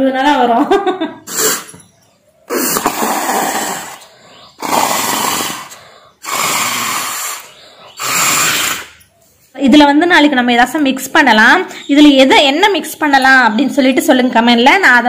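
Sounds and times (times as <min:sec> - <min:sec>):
breath blown through a straw: 0:01.3 - 0:01.7, 0:02.5 - 0:09.0.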